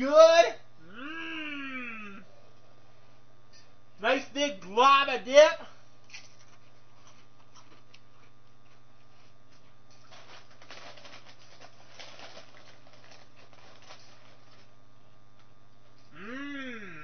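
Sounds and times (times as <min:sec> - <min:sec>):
steady low hum: 0:00.0 - 0:17.0
foil chip bag crinkling: 0:06.1 - 0:14.8
potato chip being chewed: 0:07.0 - 0:13.8.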